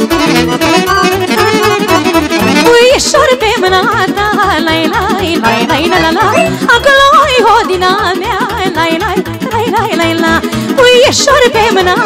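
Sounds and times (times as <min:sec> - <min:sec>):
accordion: 0:00.0 - 0:12.0
steady bass beat: 0:05.4 - 0:06.7.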